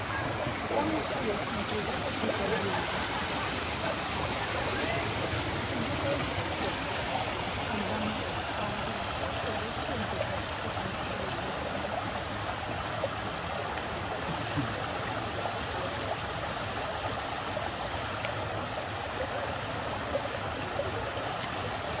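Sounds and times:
water running down a cascade: 0.0s - 22.0s.

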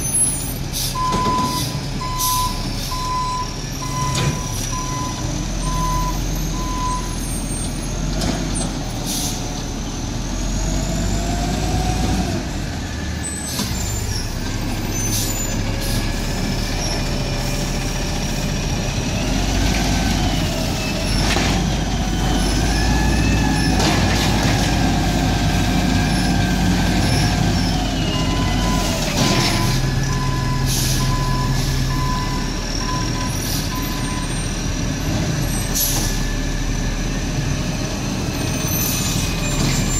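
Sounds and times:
reversing beeper: 0.0s - 7.3s, 27.5s - 34.5s
diesel truck engine revving: 0.0s - 39.9s
air brakes hissing: 9.0s - 9.5s, 14.9s - 16.2s, 30.6s - 31.9s.

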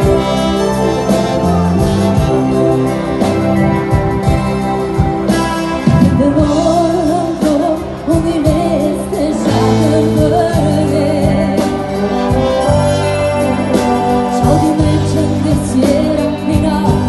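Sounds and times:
live band playing loud music: 0.0s - 17.0s
person singing: 6.0s - 17.0s.

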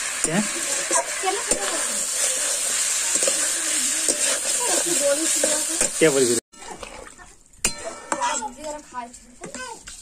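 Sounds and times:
chicken sizzling in a wok: 0.0s - 6.4s
metal spatula scraping a pan: 0.0s - 10.0s.

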